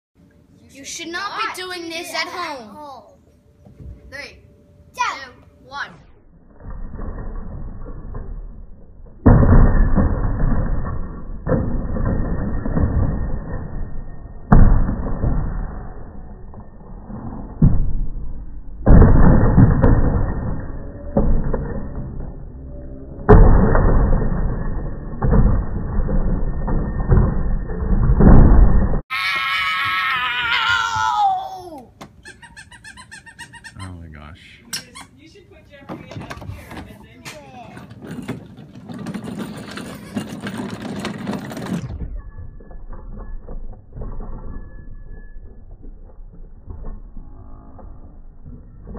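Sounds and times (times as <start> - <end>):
plastic toy wheels rattling on wood: 35.9 - 42.0
plastic toy car tumbling down steps: 35.9 - 48.9.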